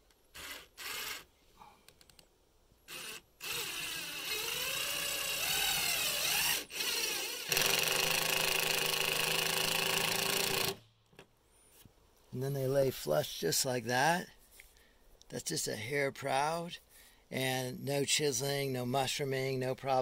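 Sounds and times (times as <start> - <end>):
impact driver driving screw: 2.9 - 10.8.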